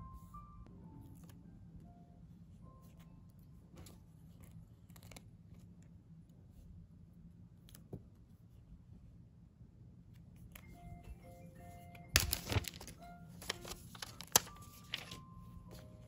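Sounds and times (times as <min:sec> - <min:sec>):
low room hum: 0:00.0 - 0:16.0.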